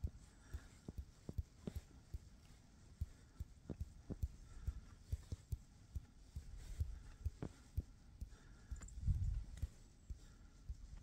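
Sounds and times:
wind buffeting microphone: 8.8 - 9.8.

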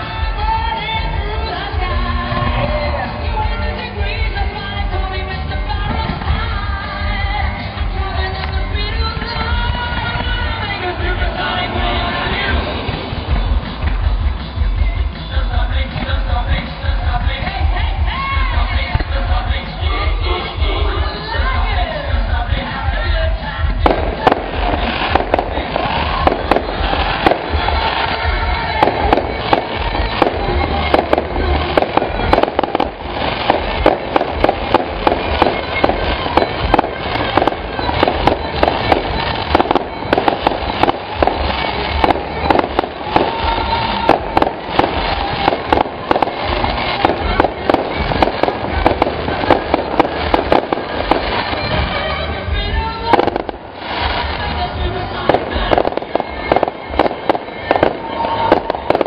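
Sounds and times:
fireworks bangs and crackles: 0.0 - 59.0.

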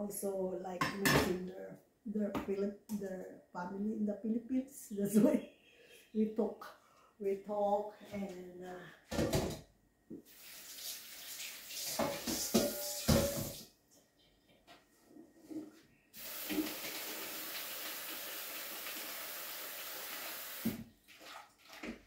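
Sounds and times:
tap water running: 10.2 - 13.7, 16.2 - 22.0
dishes knocking in sink: 12.0 - 13.6.

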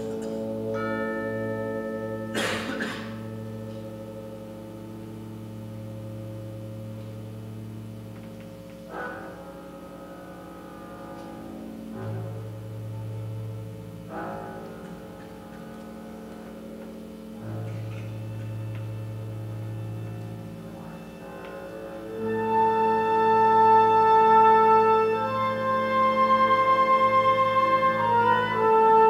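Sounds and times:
cellos and double bass: 0.0 - 2.3, 3.2 - 29.0.

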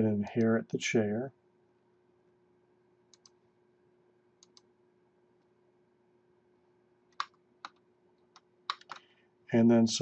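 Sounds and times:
computer mouse clicks: 3.1 - 3.4, 4.4 - 4.7, 7.1 - 9.1.

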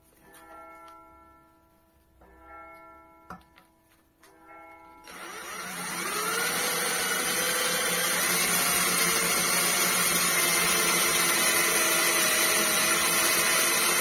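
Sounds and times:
cordless drill boring into steel: 5.0 - 14.0.

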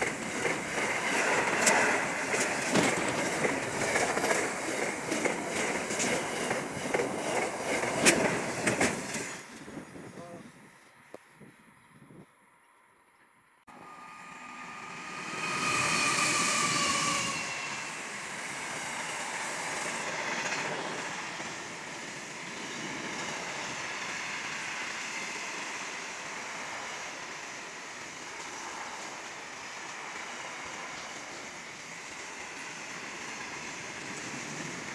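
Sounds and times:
steel wagons rumbling past: 0.0 - 9.5
diesel locomotives passing: 0.0 - 11.2, 13.7 - 34.9.

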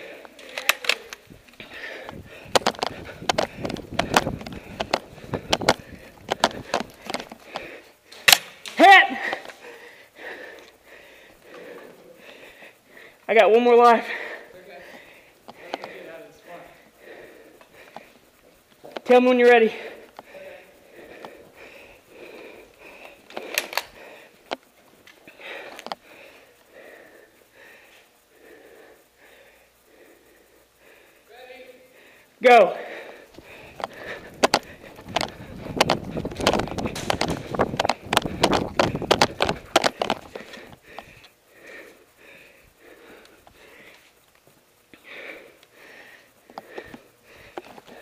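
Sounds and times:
person breathing hard: 0.0 - 19.0, 19.6 - 48.0
sharp clicks: 0.2 - 8.8, 22.8 - 26.0, 33.3 - 41.4.

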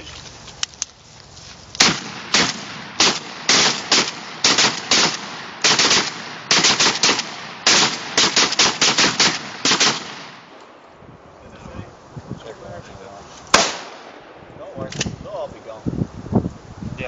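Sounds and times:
shotguns firing rapid shots: 1.8 - 10.5, 13.5 - 14.4.

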